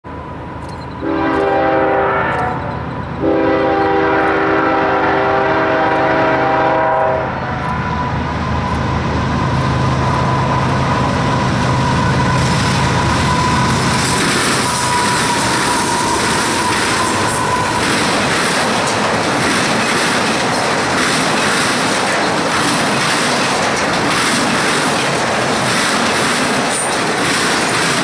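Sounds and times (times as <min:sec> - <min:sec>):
train rumble approaching: 0:00.0 - 0:28.0
locomotive air horn blasts: 0:01.0 - 0:08.2.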